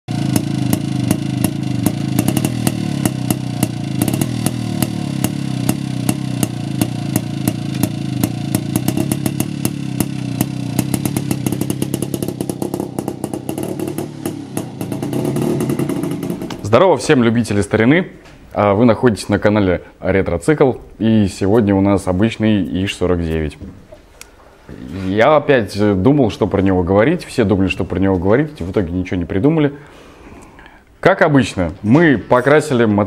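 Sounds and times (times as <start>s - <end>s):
motorcycle engine running: 0.1s - 16.7s.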